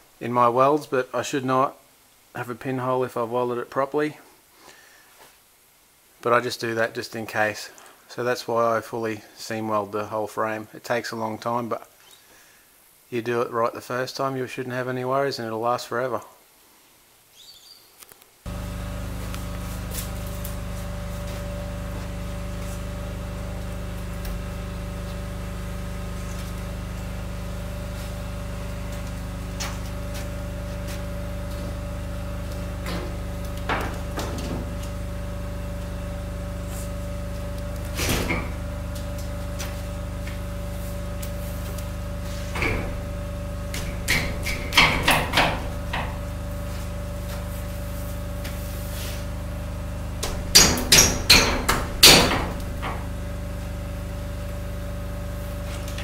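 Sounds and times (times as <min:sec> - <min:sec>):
steady machine hum: 0:18.5 - 0:56.0
window frame knocking against steel: 0:43.8 - 0:46.2, 0:50.2 - 0:53.1.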